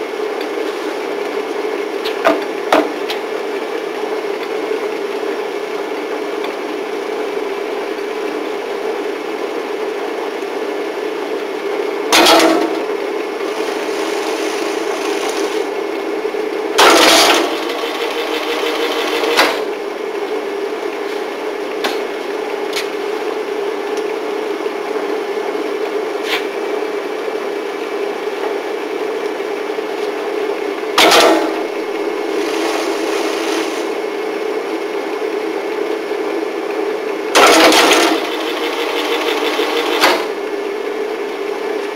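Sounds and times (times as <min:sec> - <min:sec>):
loud knocks and clatters: 0:12.1 - 0:12.8
machine motor hum: 0:13.3 - 0:16.0, 0:16.8 - 0:20.1, 0:37.4 - 0:40.6.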